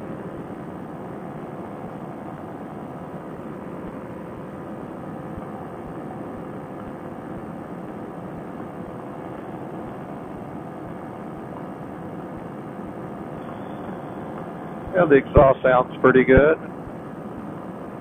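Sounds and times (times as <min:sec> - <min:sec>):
paramotor engine and propeller: 0:12.7 - 0:16.0.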